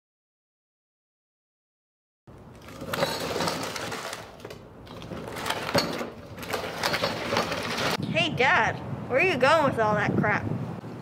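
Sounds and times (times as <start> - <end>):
cart wheels rattling on pavement: 2.5 - 8.0.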